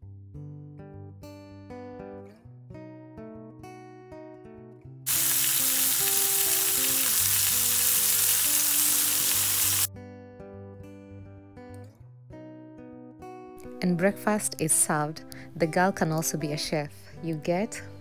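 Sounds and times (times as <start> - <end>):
acoustic guitar music: 0.0 - 18.0
meat sizzling in a pan: 5.1 - 9.9.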